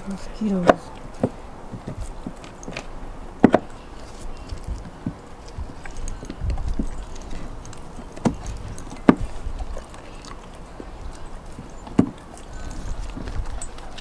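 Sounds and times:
dog gnawing a bone: 0.6 - 14.0
bone knocking on wooden boards: 3.4 - 3.7.

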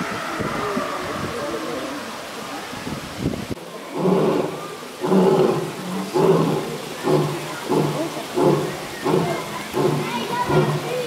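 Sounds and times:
lion grunting: 3.9 - 11.0.

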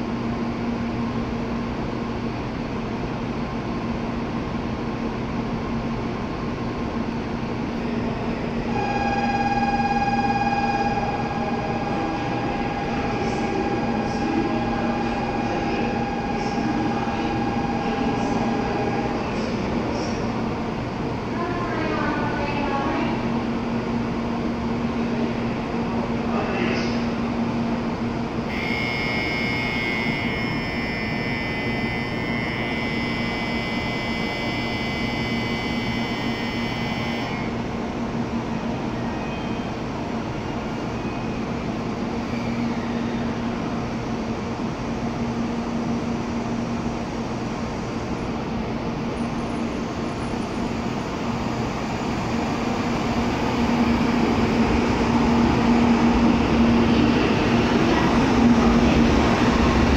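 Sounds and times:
train hum: 0.0 - 59.9
train pulling out: 7.6 - 21.6, 46.2 - 59.9
electronic departure bell ringing: 28.5 - 37.5.

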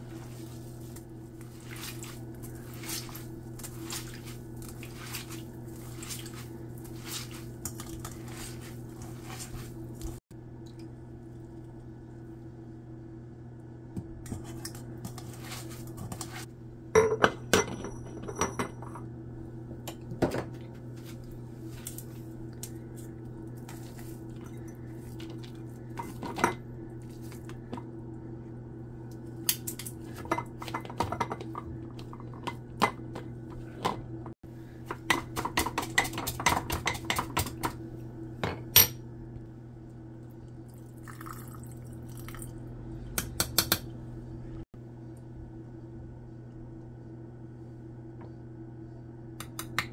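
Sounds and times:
spatula scraping: 0.0 - 10.2, 14.3 - 16.5
squeezing grated vegetables: 0.0 - 10.2, 15.1 - 16.5, 21.0 - 26.3
steady low hum: 0.0 - 49.9.

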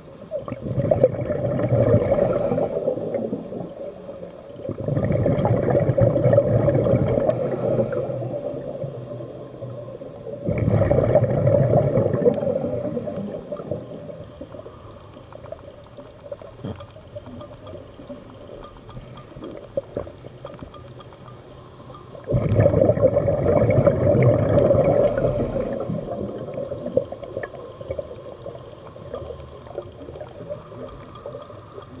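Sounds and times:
breath bubbling underwater: 0.5 - 3.8, 4.7 - 8.8, 10.4 - 14.1, 22.3 - 28.0
faint clicks: 12.1 - 22.3, 24.9 - 32.0.

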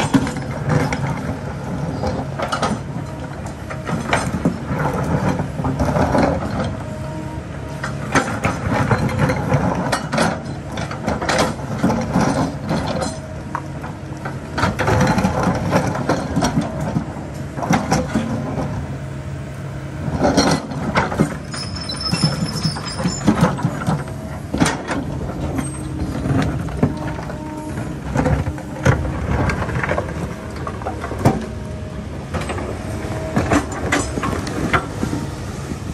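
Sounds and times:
diesel engine running: 0.0 - 35.9
high squeal: 21.5 - 23.4
metal clanking against rock: 33.3 - 34.9.

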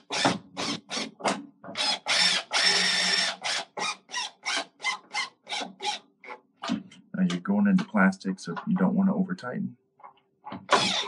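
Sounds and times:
cordless drill driving screws: 0.0 - 1.1, 1.8 - 6.0, 10.7 - 11.0.

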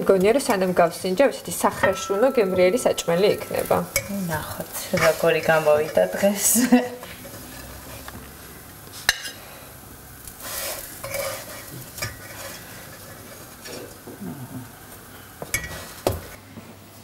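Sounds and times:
light sizzle: 0.0 - 17.0
spatula scraping frying pan: 0.1 - 8.2, 10.2 - 14.0, 15.5 - 16.4.

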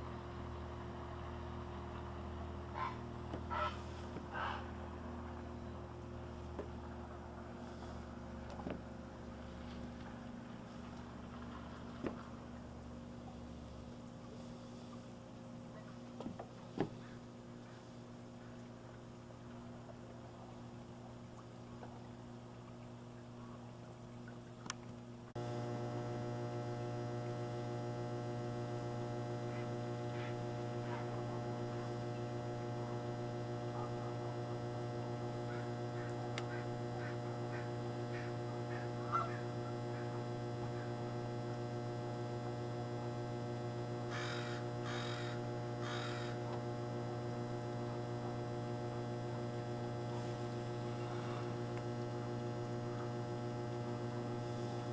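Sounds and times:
steady low hum: 0.0 - 54.9
short bird calls: 2.8 - 4.8, 35.5 - 40.1, 44.1 - 46.4.

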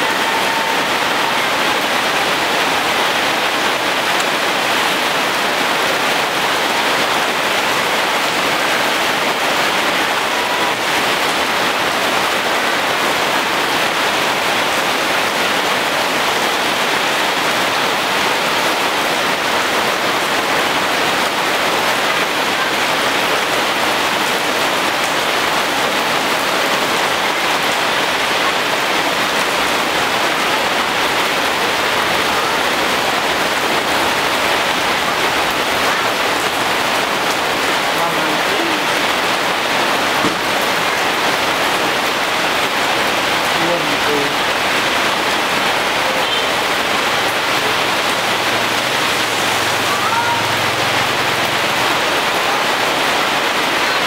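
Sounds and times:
rain falling on leaves: 0.0 - 54.0.

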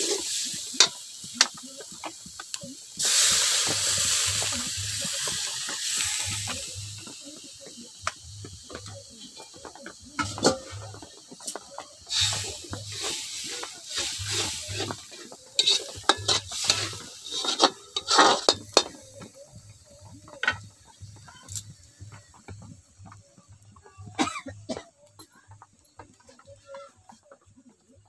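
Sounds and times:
metal spoon scraping a wok: 2.4 - 7.0, 8.5 - 19.3.

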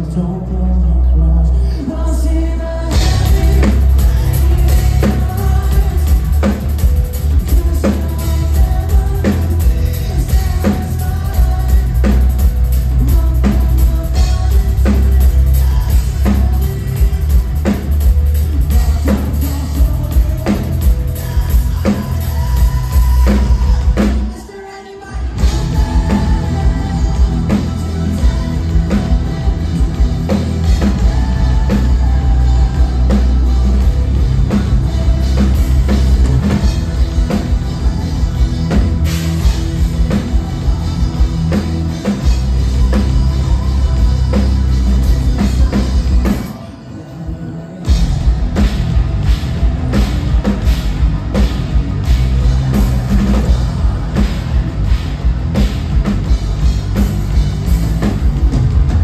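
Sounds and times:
live metal band playing loud: 0.0 - 59.0.

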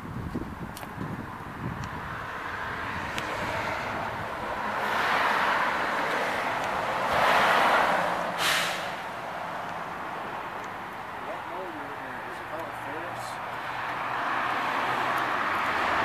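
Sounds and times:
road traffic tyre noise: 0.0 - 16.0
short sharp hiss: 8.4 - 9.0.

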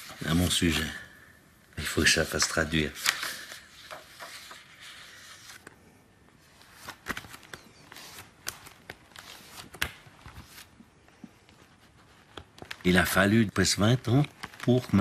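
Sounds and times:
paper pages rustling: 1.8 - 15.0
pages snapping as they flip: 3.0 - 5.8, 6.5 - 10.8, 11.4 - 13.2, 14.0 - 15.0.

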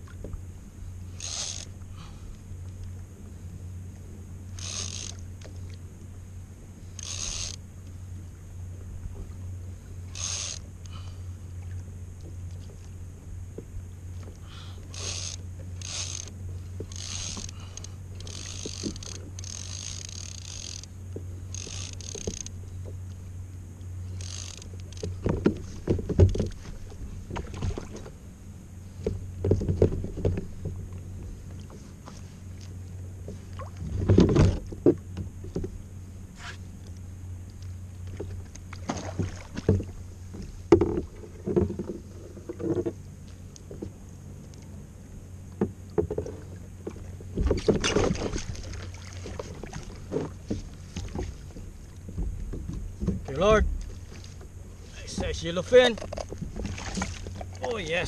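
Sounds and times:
fishing reel and line noise: 0.0 - 8.2, 9.2 - 13.2, 13.9 - 26.9
steady low hum: 0.0 - 58.0.

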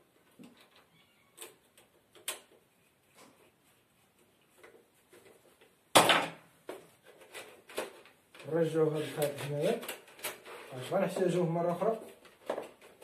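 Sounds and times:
loud clatter of hard objects: 12.1 - 13.0.

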